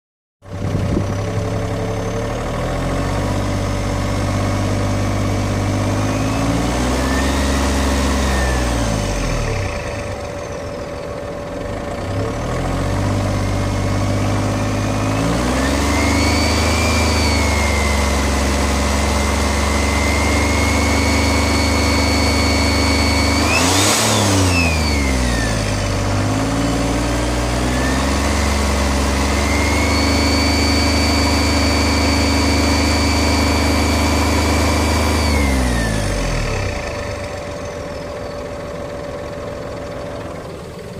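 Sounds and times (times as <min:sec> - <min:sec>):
car engine revving: 0:11.8 - 0:40.4.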